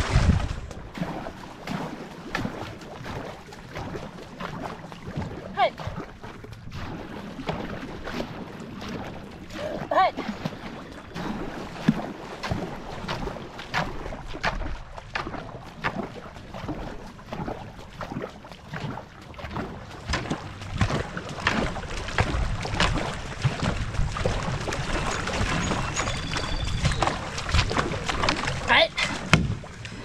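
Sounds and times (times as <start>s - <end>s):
wind rumble on microphone: 0.0s - 4.0s, 4.6s - 30.0s
canoe paddles splashing water: 0.0s - 30.0s.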